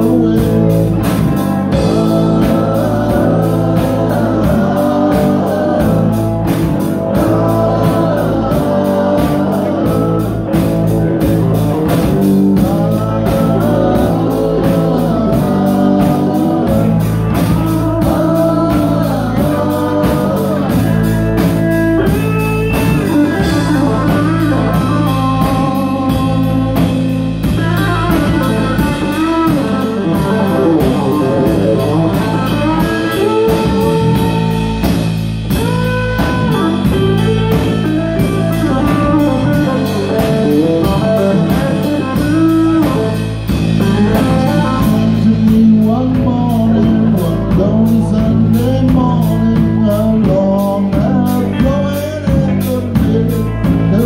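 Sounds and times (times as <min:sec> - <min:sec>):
drum kit: 0:00.0 - 0:54.0
electric guitars: 0:00.0 - 0:54.0
person singing lead vocal: 0:00.0 - 0:54.0.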